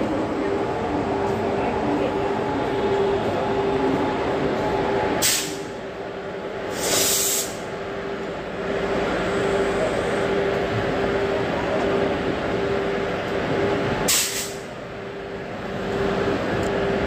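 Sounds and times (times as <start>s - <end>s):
electric locomotive hum: 0.0s - 17.0s
compressed air hissing: 5.2s - 5.6s, 6.7s - 7.6s, 14.1s - 14.6s.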